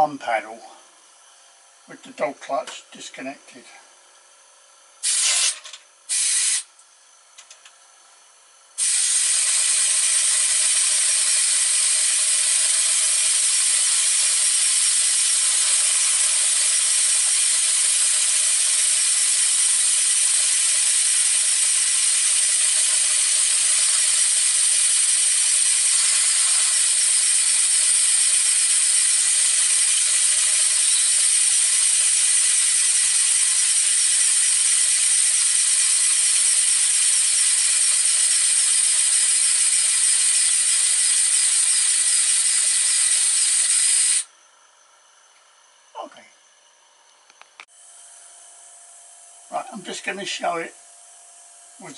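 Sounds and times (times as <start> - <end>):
air-driven model engine clatter: 5.0 - 6.6, 8.8 - 44.3
short burst of air: 5.0 - 6.7, 8.8 - 44.3.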